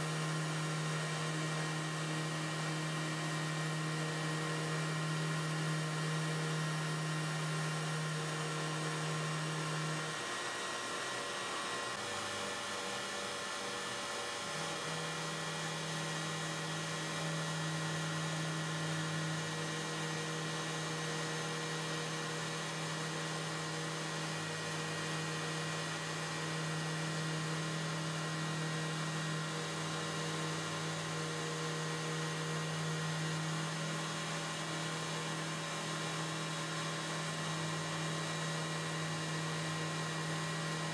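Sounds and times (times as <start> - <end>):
router spindle humming: 0.0 - 40.9.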